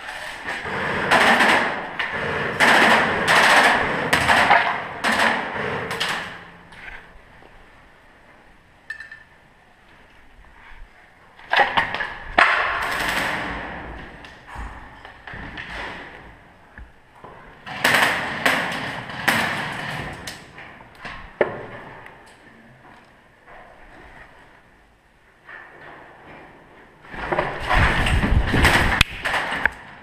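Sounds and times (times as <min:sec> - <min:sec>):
echoing knocks and bangs: 0:00.5 - 0:06.7, 0:11.5 - 0:16.4, 0:17.6 - 0:20.4.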